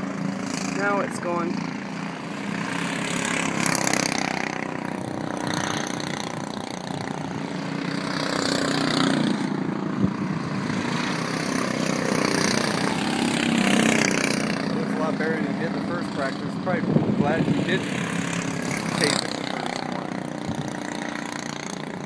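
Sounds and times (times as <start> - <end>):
race car engines passing: 0.0 - 22.0.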